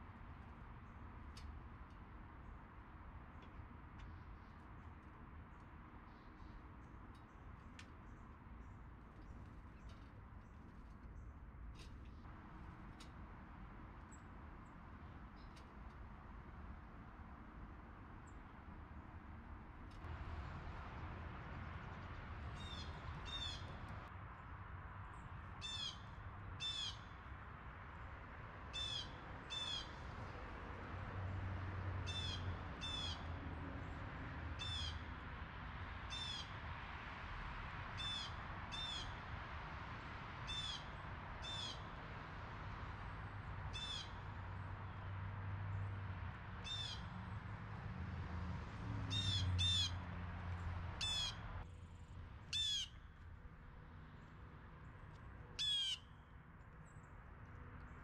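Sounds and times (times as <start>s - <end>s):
blue jay calling: 22.6s - 23.8s, 25.6s - 27.1s, 28.8s - 30.0s, 32.0s - 33.3s, 34.6s - 35.0s, 38.0s - 39.2s, 40.5s - 41.9s, 43.7s - 44.2s, 46.6s - 47.1s, 49.1s - 50.0s, 51.0s - 51.5s, 52.5s - 53.1s, 55.6s - 56.2s.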